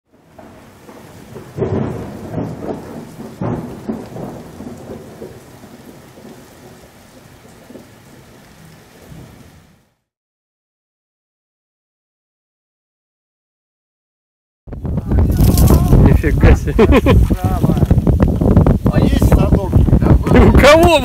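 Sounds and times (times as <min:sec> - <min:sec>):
loud thunder claps: 0:00.1 - 0:06.9, 0:14.7 - 0:21.0
thunder rumbling: 0:00.1 - 0:09.7, 0:14.7 - 0:21.0
steady rain: 0:00.1 - 0:10.1, 0:14.7 - 0:21.0.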